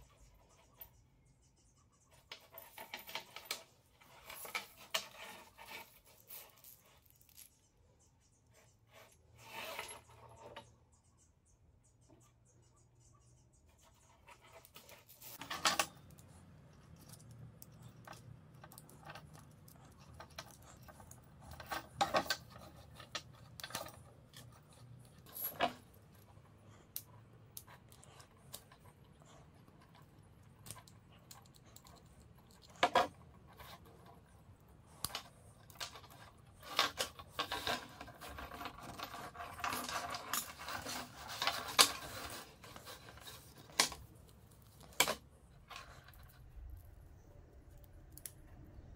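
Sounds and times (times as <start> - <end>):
metal hose clinking and rattling: 2.1 - 7.7, 14.0 - 34.3, 34.9 - 46.8.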